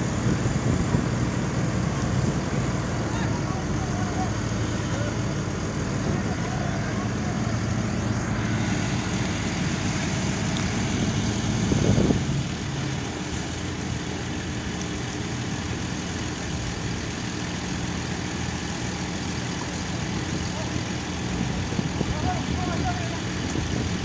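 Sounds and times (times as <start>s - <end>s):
diesel engine revving: 0.0s - 24.0s.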